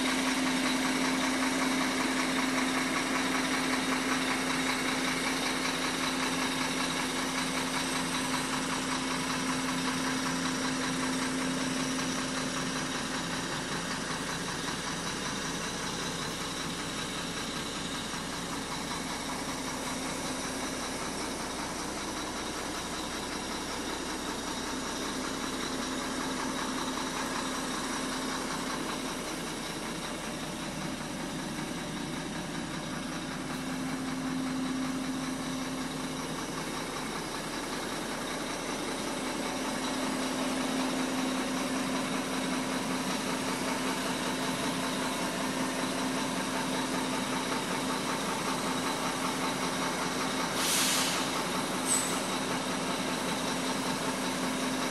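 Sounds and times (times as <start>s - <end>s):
diesel truck engine idling: 0.0s - 54.9s.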